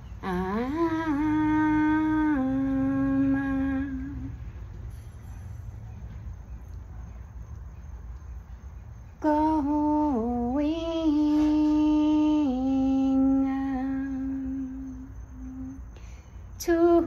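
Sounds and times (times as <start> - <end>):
woman singing long held notes: 0.0 - 4.7, 9.2 - 17.0
low steady rumble: 0.0 - 17.0.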